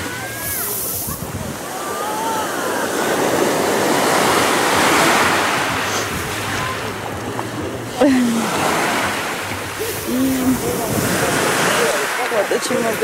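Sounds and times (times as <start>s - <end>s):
waves washing up pebble beach: 0.0s - 6.7s, 8.4s - 13.0s
person's voice: 9.9s - 13.0s.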